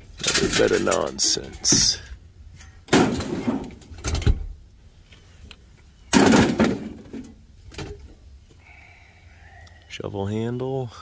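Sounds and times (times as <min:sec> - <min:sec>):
junk crashing and clattering: 0:00.0 - 0:04.6, 0:06.1 - 0:08.2
junk knocking: 0:06.1 - 0:08.1.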